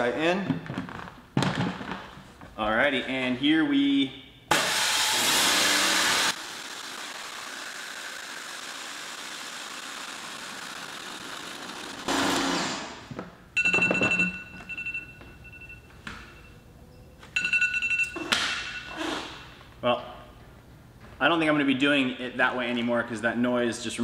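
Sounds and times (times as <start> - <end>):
timer alarm beeping: 13.6 - 16.7, 17.4 - 19.0.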